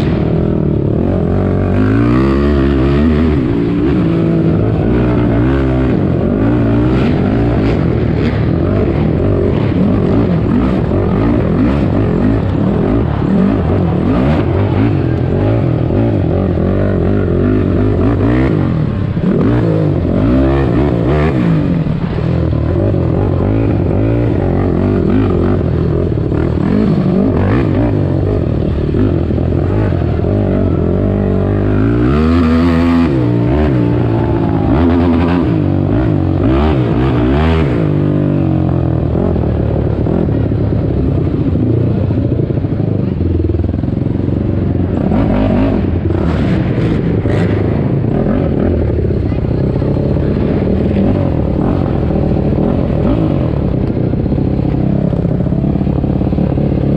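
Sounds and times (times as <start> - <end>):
quad engine revving: 0.0 - 56.9.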